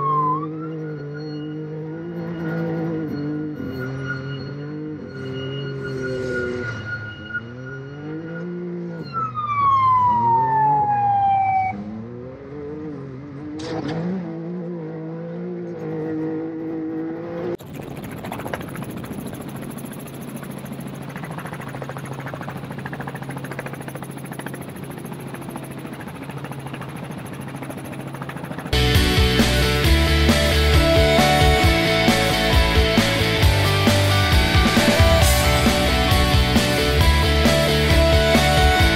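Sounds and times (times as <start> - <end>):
engine revving: 0.0 - 9.4, 10.0 - 38.9
whine gliding down in pitch: 0.0 - 11.9.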